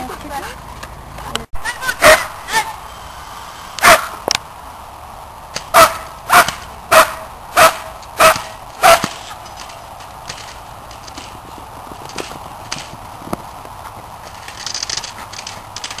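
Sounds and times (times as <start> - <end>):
dog barking sharply: 2.0 - 2.3, 3.8 - 4.2, 5.8 - 9.2.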